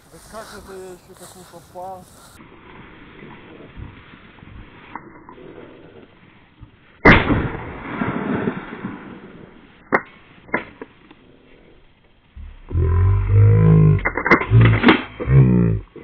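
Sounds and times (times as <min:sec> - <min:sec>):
shotgun shot: 0:07.0 - 0:09.2.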